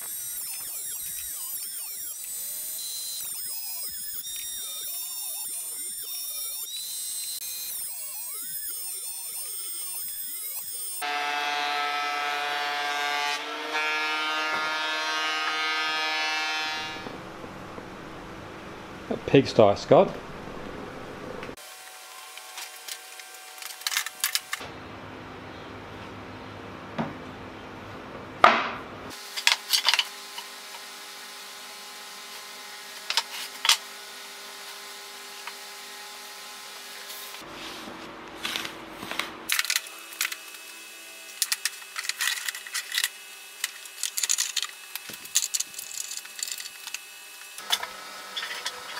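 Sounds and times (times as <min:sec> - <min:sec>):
thickness planer motor whine: 0:00.0 - 0:19.1, 0:30.0 - 0:45.6, 0:46.2 - 0:48.9.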